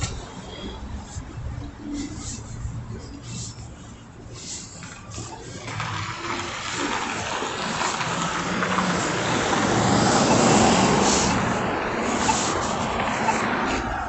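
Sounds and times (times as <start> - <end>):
car driving past: 5.6 - 14.0.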